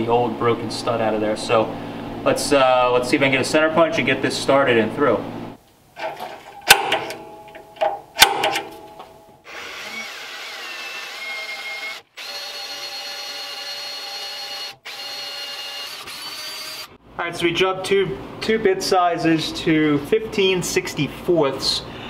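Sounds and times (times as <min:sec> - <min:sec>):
center punch snapping on metal: 0:06.0 - 0:09.3
power drill whining: 0:09.5 - 0:17.0.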